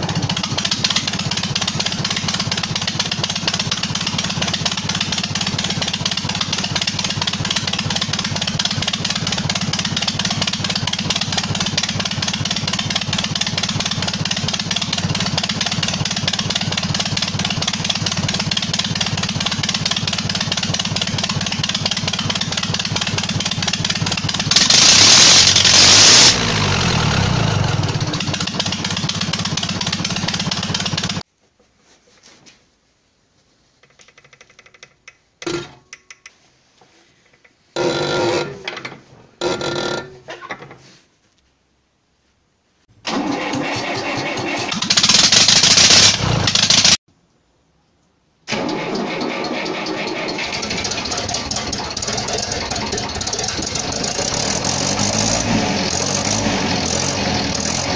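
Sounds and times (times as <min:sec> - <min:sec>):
tractor diesel engine running: 0:00.0 - 0:31.2, 0:43.1 - 0:47.0, 0:48.5 - 0:57.9
loud hiss: 0:24.5 - 0:26.7.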